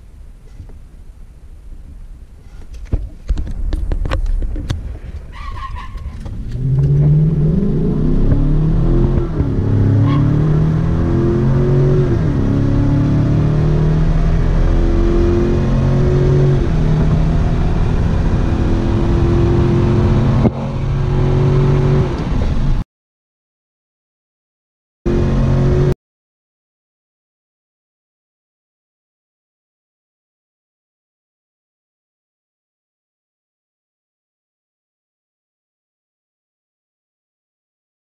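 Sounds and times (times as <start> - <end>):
pickup engine accelerating hard: 5.8 - 22.8.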